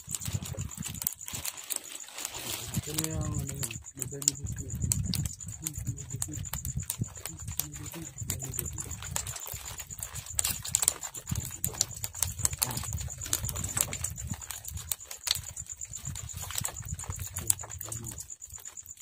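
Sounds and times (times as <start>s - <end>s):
low rumble: 2.5s - 9.3s.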